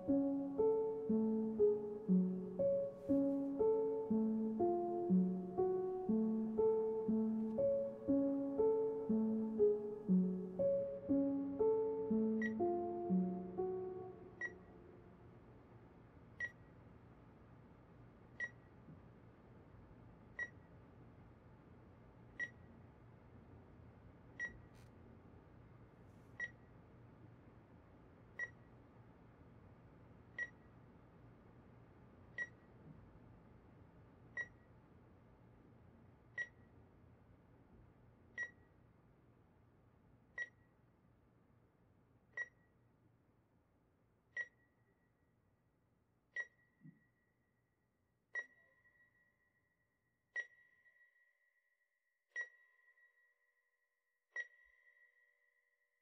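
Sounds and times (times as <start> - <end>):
faint low room hum: 0.0 - 47.8.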